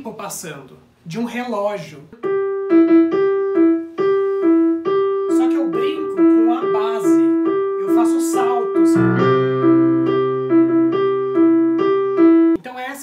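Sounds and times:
digital piano two-note figure: 2.2s - 12.6s.

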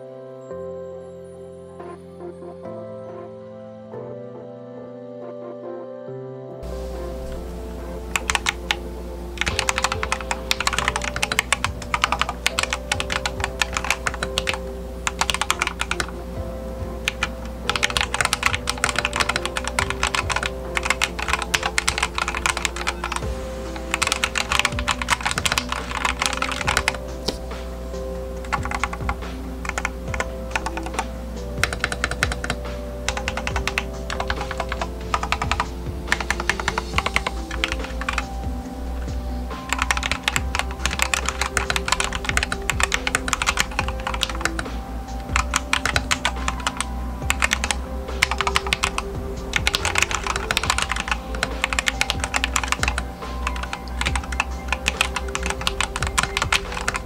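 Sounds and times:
mechanical keyboard typing: 8.1s - 8.8s, 9.4s - 16.1s, 17.0s - 27.5s, 28.4s - 38.3s, 39.5s - 57.0s.

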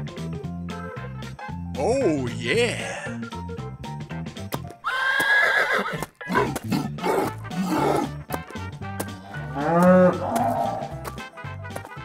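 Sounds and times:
cartoon background music: 0.0s - 4.8s, 6.2s - 12.0s
horse whinnying: 4.8s - 8.1s.

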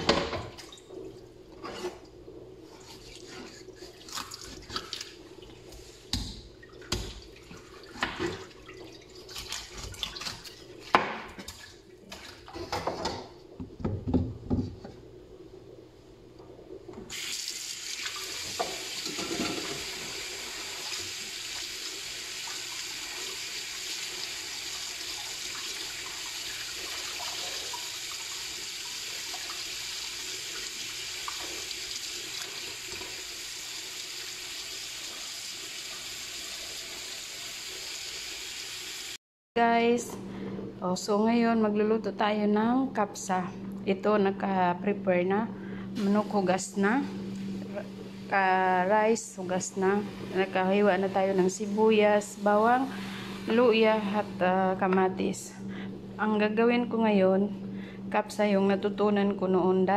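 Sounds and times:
kitchen tap running: 16.9s - 39.2s.

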